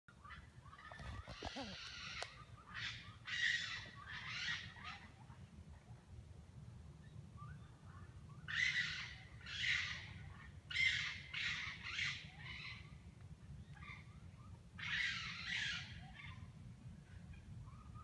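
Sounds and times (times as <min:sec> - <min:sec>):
raccoons screeching: 0:00.8 - 0:04.9.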